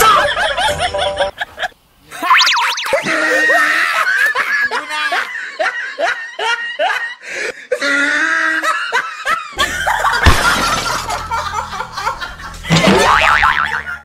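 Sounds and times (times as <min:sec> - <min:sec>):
laugh track: 0:00.0 - 0:14.0
comic sound effect with low drone: 0:02.2 - 0:03.6.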